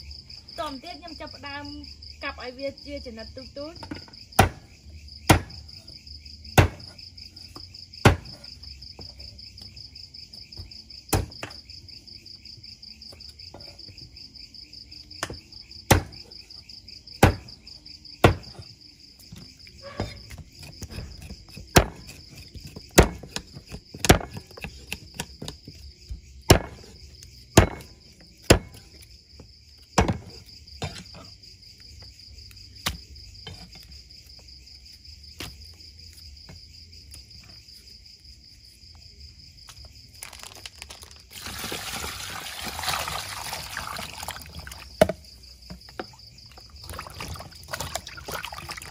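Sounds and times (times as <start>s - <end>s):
insect trill: 0.0s - 48.9s
cleaver chopping on wooden block: 3.9s - 4.7s, 5.3s - 5.6s, 6.5s - 7.0s, 8.0s - 8.5s, 11.1s - 11.6s, 15.2s - 16.2s, 17.2s - 17.5s, 18.2s - 18.6s, 20.0s - 25.8s, 26.5s - 26.9s, 27.5s - 29.0s, 30.0s - 31.0s
water running into steel bowl: 41.3s - 44.8s, 46.9s - 48.9s.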